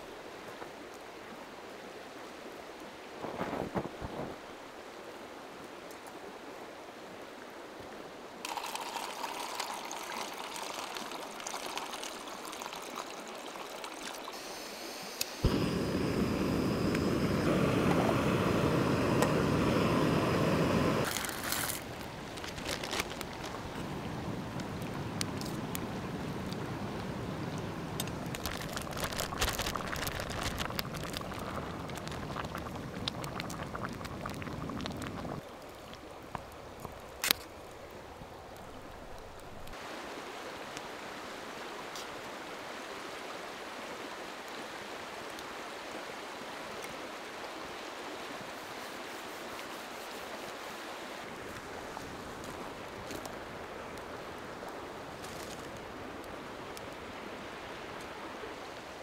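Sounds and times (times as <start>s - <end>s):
water pouring into pot: 8.4s - 14.4s, 28.0s - 35.4s.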